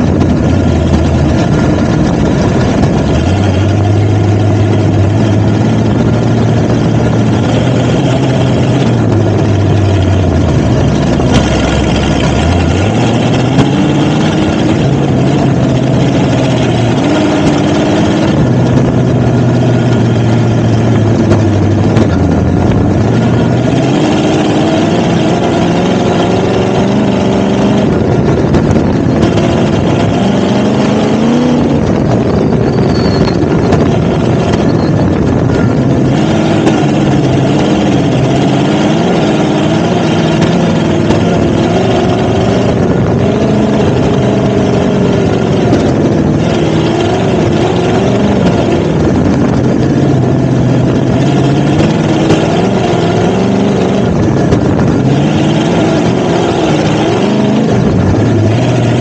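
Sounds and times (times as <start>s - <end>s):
off-road vehicle engine revving: 0.0s - 59.0s.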